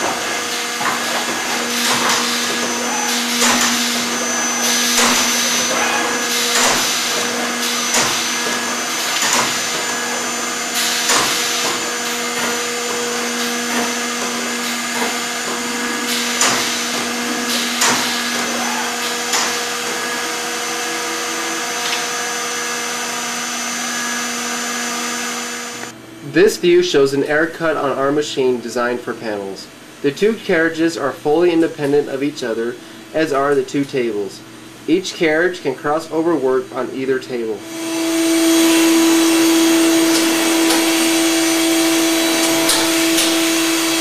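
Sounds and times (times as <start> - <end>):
router spindles whining: 0.0 - 25.9, 37.6 - 44.0.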